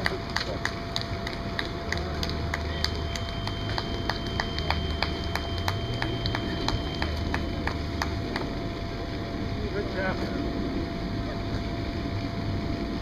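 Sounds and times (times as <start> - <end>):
thin high tone: 2.4 - 8.4.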